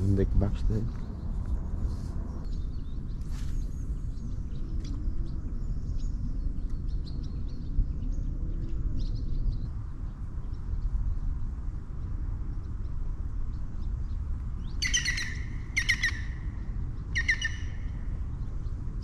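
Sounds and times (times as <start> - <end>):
low rumble: 0.0 - 14.8
small birds chirping: 12.6 - 18.8.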